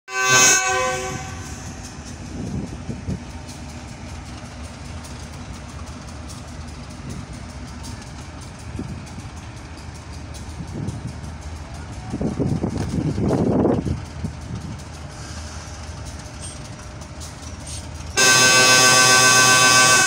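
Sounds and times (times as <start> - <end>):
locomotive horn blast: 0.1 - 1.8, 18.2 - 20.0
diesel engine low rumble: 0.2 - 20.0.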